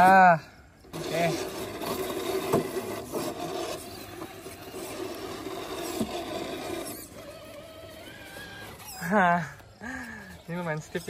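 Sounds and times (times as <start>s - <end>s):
electric motor whirring: 0.8s - 11.0s
rasping scrapes on rock: 0.9s - 9.4s.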